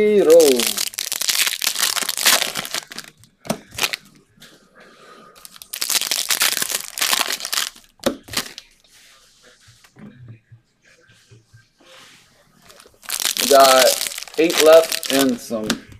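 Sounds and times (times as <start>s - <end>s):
foil wrapper crinkling: 0.0s - 3.1s, 3.7s - 4.0s, 5.4s - 8.6s, 12.6s - 15.6s
sharp crackles of foil: 0.0s - 3.1s, 5.4s - 8.6s, 12.6s - 15.5s.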